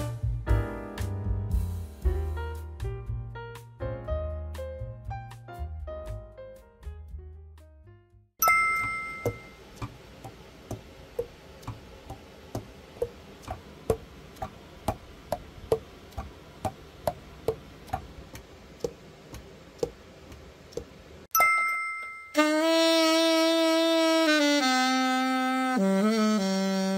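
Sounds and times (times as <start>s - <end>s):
short ringing tone: 8.4s - 9.6s, 21.3s - 22.7s.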